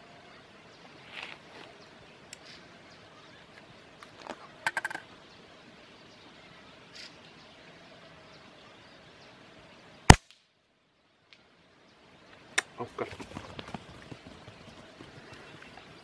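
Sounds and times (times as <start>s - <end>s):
air rifle shot: 10.1s - 10.4s.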